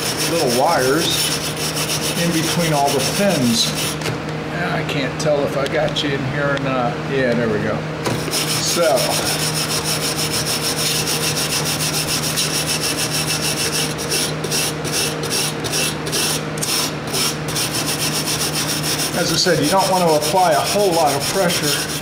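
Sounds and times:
wire brush scraping metal fins: 8.2s - 22.0s.

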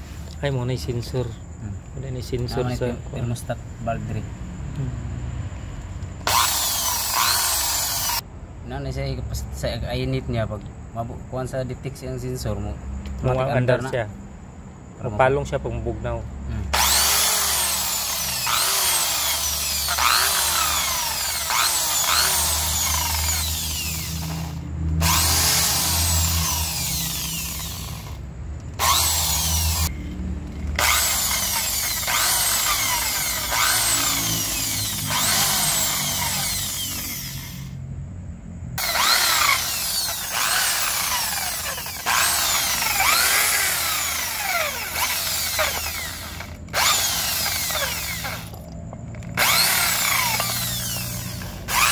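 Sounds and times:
drill wire brush scratching metal: 16.8s - 28.2s, 30.8s - 37.6s, 38.8s - 48.6s, 49.4s - 51.9s.

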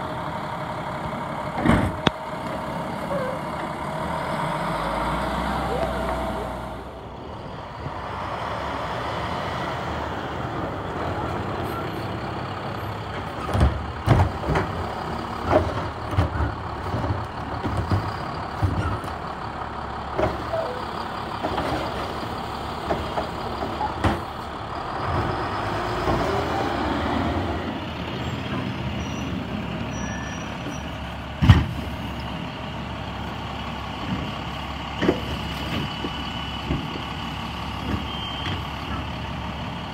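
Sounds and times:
garbage truck engine and pump: 0.0s - 39.9s
clunks and knocks: 1.5s - 2.6s, 13.0s - 19.2s, 20.1s - 20.8s, 21.4s - 22.2s, 22.8s - 24.4s, 30.6s - 32.3s, 34.0s - 39.1s.

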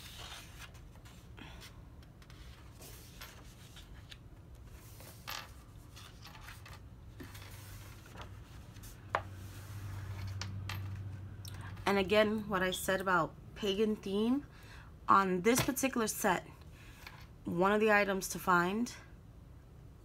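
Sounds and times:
book pages turning: 0.0s - 5.2s.

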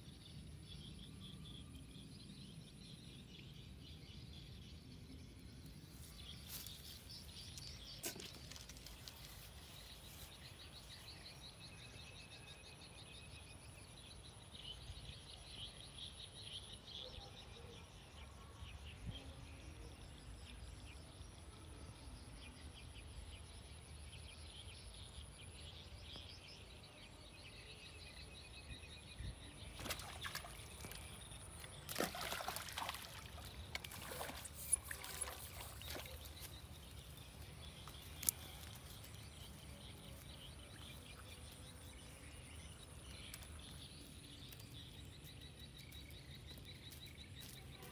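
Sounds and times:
splashing in pond water: 29.7s - 39.1s.

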